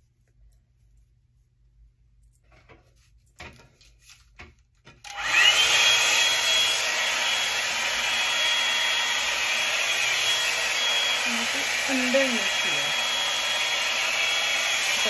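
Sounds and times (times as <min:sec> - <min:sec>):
hair dryer brush blowing air: 0:05.1 - 0:15.0.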